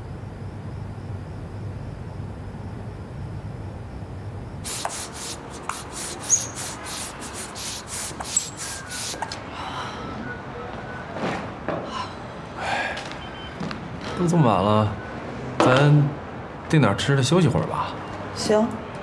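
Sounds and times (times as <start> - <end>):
low steady hum: 0.0 - 5.8
hand balloon pump strokes: 4.6 - 9.4
short high squeaks: 4.7 - 9.4.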